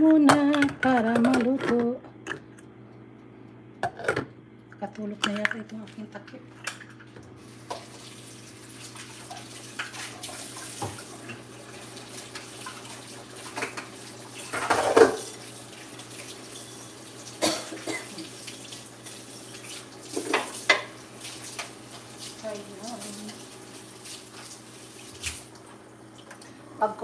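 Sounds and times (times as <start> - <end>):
faint hum: 0.0 - 19.3, 25.5 - 27.0
water running: 4.6 - 27.0
pots and lid clattering: 13.5 - 15.5.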